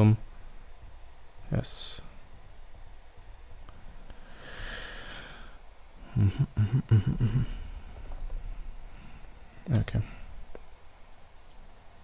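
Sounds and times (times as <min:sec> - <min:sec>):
breath out through nose: 0:04.2 - 0:05.6
computer keyboard typing: 0:06.8 - 0:08.6.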